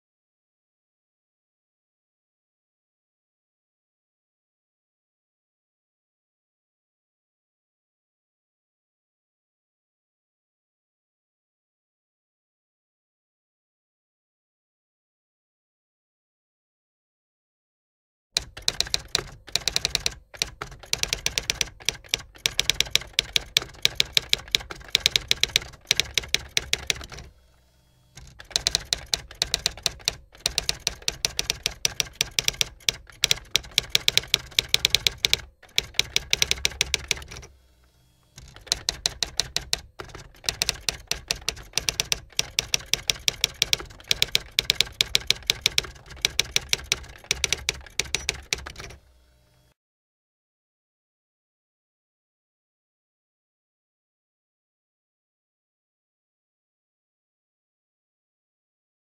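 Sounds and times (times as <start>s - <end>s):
typewriter keys clacking: 18.4s - 27.3s, 28.2s - 37.5s, 38.4s - 49.0s.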